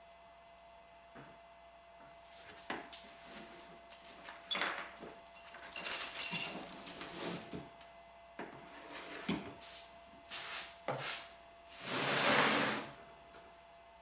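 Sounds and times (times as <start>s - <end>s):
metal parts clattering on wood: 4.5s - 7.5s
heavy metal frame scraping wood: 6.6s - 7.6s, 8.7s - 9.3s, 11.7s - 13.0s.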